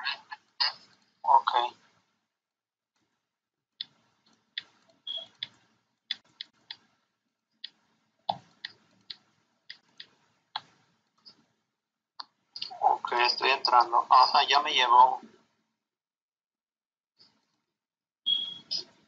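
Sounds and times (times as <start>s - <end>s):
computer clicks: 3.8s - 6.9s.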